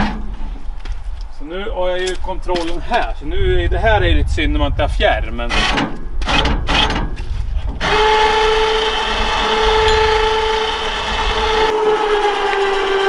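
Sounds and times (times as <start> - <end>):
electric winch motor whining: 7.8 - 13.0.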